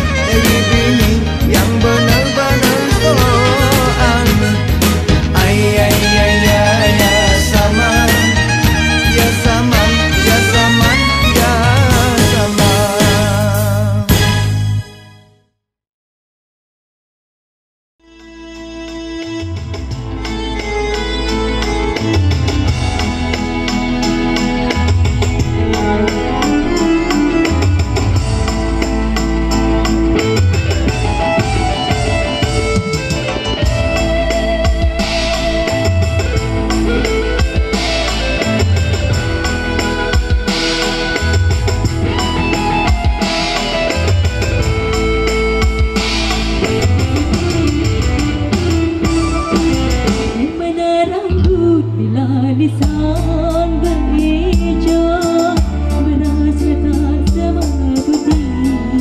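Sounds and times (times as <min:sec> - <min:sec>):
keyboard band instrumental music: 0:00.0 - 0:15.4, 0:18.0 - 0:59.0
woman singing: 0:00.1 - 0:04.7, 0:50.3 - 0:59.0.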